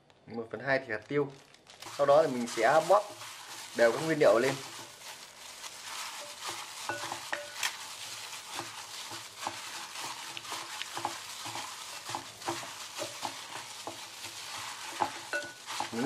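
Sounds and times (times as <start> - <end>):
wet squelches of kneaded meat: 1.0 - 16.0.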